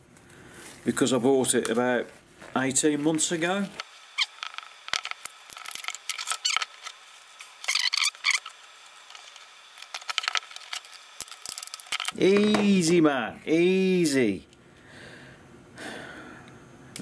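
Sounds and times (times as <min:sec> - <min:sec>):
mould peeling off crackling: 0:00.7 - 0:12.4.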